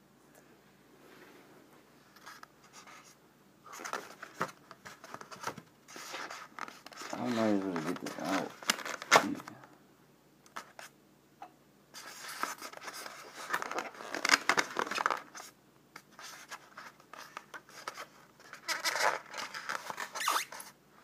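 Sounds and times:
foam packaging rubbing and scraping: 5.9 - 9.2, 16.2 - 20.7.

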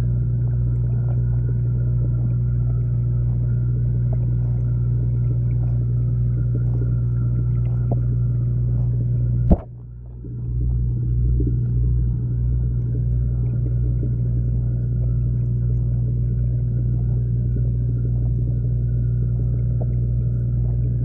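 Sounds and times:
underwater hum and rumble: 0.0 - 21.0
sharp knock: 9.5 - 9.7.

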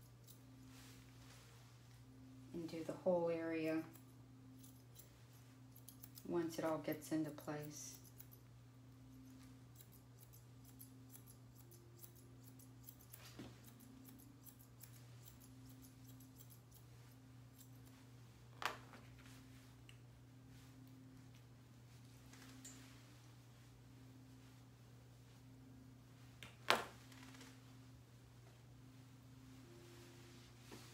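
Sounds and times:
low hum: 0.0 - 30.9
scissors snipping fur: 0.1 - 0.5, 3.7 - 5.1, 5.7 - 8.4, 9.1 - 16.9, 17.5 - 18.0.

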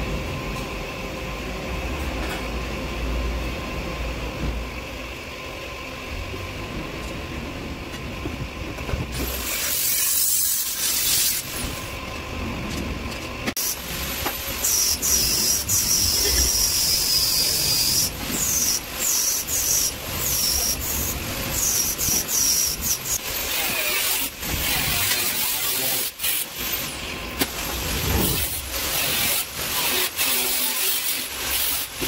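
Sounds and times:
welding arc hissing: 9.2 - 11.9, 13.6 - 32.0.

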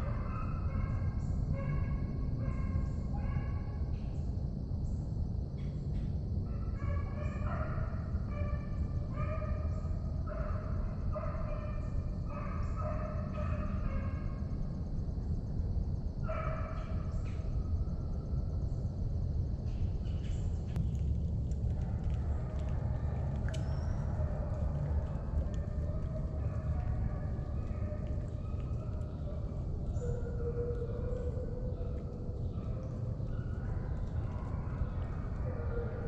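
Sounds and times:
steady low rumble: 17.5 - 36.0
hounds baying: 21.9 - 36.0.

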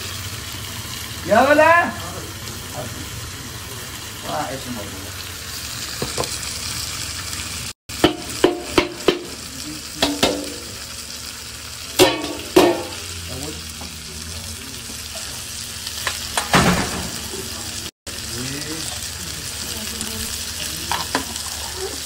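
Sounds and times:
food sizzling in oil: 0.0 - 22.0
ladle knocking against pot: 10.0 - 10.6, 12.0 - 13.0.

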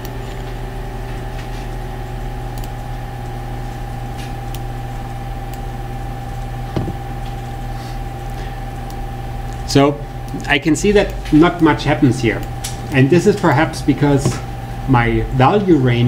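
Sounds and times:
steady hum with overtones: 0.0 - 16.0.

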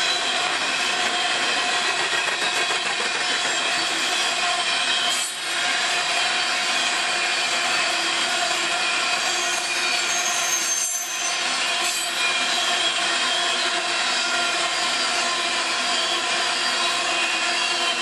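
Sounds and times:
steel wheels clattering on rail: 0.0 - 7.0
wheels squealing: 9.2 - 11.4.

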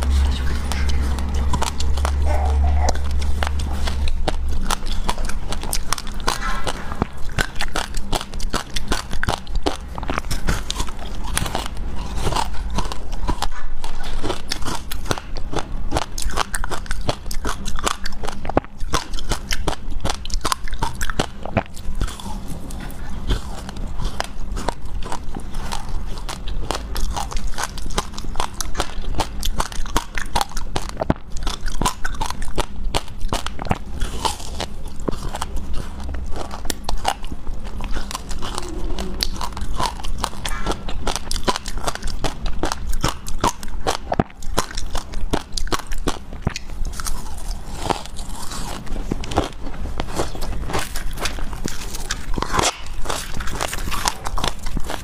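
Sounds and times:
chewing hard ice: 0.0 - 55.0.

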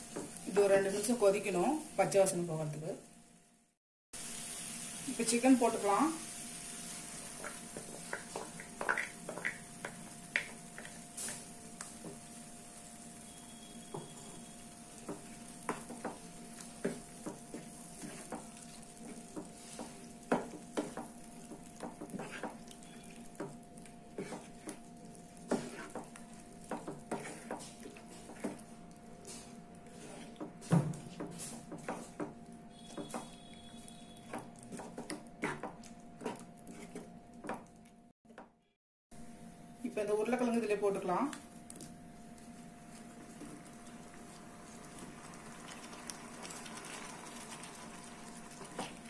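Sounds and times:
wooden spatula scraping pan: 15.0 - 22.6, 24.1 - 24.8, 25.4 - 28.6, 29.2 - 32.3, 34.7 - 37.1.

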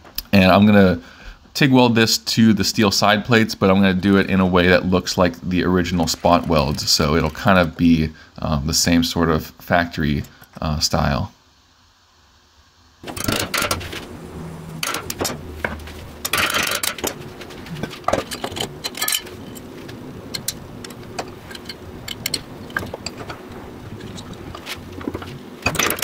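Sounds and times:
faint steady hum: 0.0 - 26.0
clinks of small steel parts: 16.3 - 19.7.

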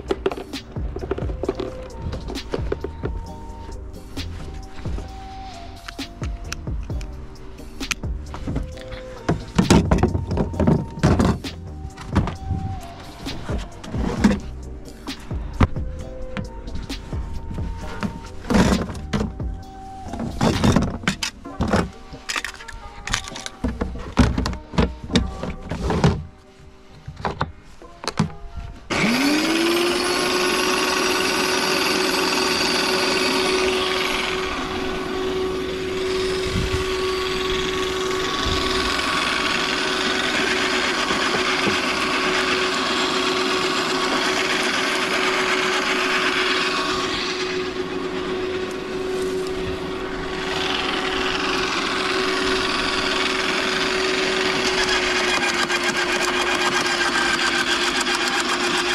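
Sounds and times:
garden shredder motor whine: 0.0 - 7.3, 7.9 - 26.2, 28.8 - 58.9.

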